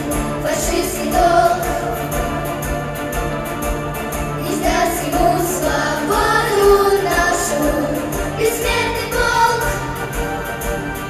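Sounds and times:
girls singing together: 0.0s - 2.5s, 4.4s - 10.3s
instrumental accompaniment with beat: 0.0s - 11.0s.

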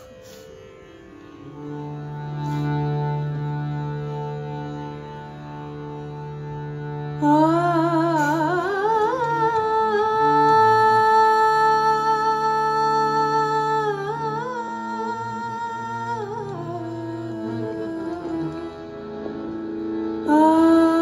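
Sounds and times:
sustained harmonium notes: 0.0s - 21.0s
woman singing: 7.2s - 19.0s, 20.2s - 21.0s.

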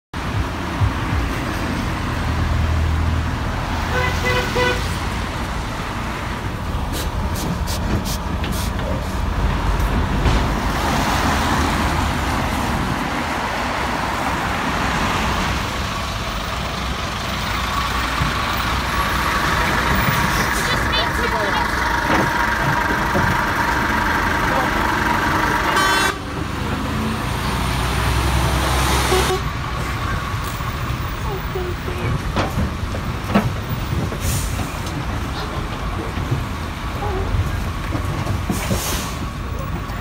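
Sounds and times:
heavy vehicles passing: 0.2s - 40.0s
vehicle horn toots: 3.9s - 4.9s, 25.7s - 26.2s, 29.0s - 29.5s.

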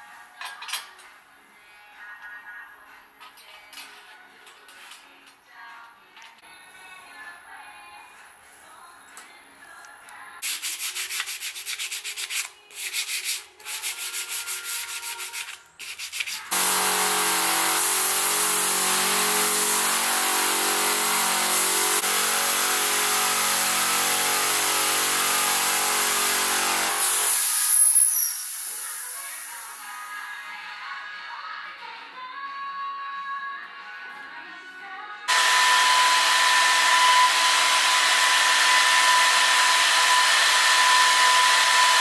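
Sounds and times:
wood sanding strokes: 10.5s - 27.4s
power sander abrasive noise: 16.5s - 27.4s, 35.3s - 42.0s.

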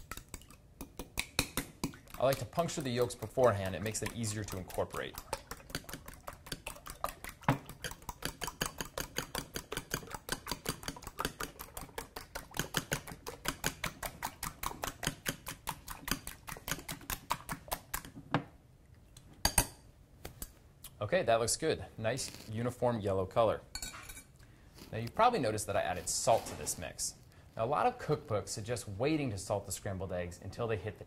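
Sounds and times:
fork beating eggs in glass bowl: 0.0s - 18.2s.

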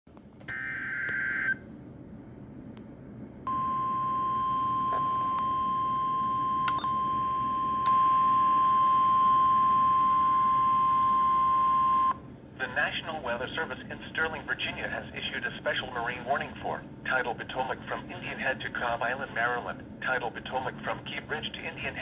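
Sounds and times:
steady warning alarm tone: 0.5s - 1.6s, 3.5s - 12.2s.

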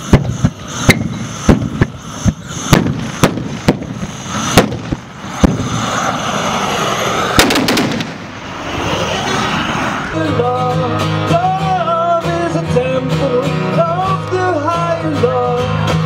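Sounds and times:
carbide cannons banging: 7.4s - 8.2s.

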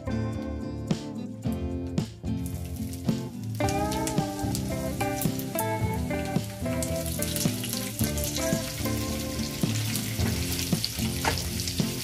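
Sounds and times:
background music: 0.0s - 12.0s
spices sizzling in oil: 0.0s - 12.0s.

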